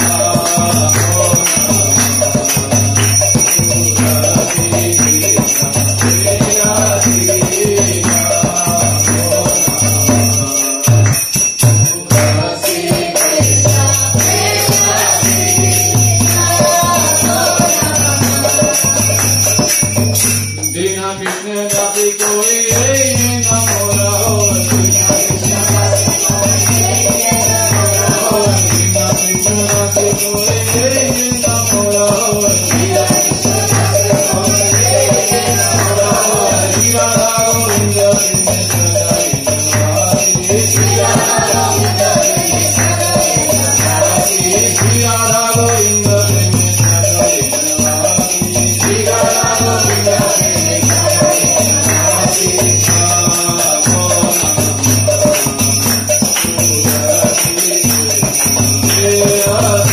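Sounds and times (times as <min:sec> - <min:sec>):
bell jingling: 0:00.0 - 0:59.9
steady drum beat: 0:00.0 - 0:59.9.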